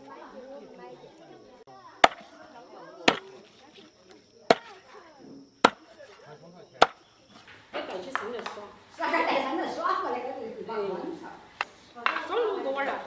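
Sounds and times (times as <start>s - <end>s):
meat cleaver chopping on wood: 2.0s - 2.2s.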